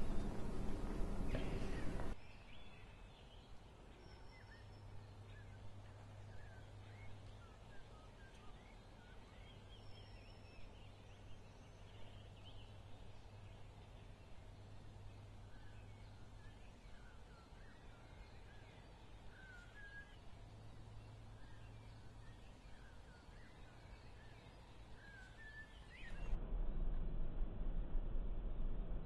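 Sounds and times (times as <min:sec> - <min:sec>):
small birds chirping: 0:00.0 - 0:26.4
low steady hum: 0:00.0 - 0:29.0.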